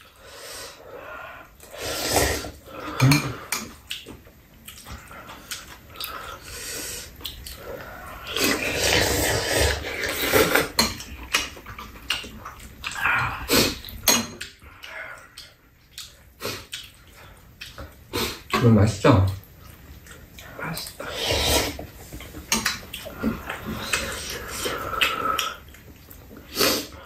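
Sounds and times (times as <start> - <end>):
people slurping noodles: 0.0 - 4.0, 4.7 - 15.6, 20.2 - 27.0.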